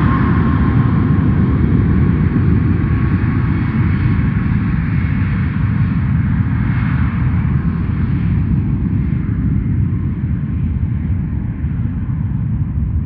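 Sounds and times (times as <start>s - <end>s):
jet engines roaring at takeoff: 0.0s - 13.0s.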